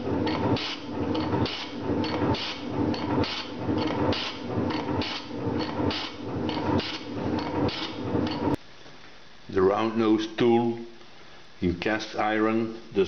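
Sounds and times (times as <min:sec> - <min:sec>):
metal shaper scraping strokes: 0:00.0 - 0:08.6.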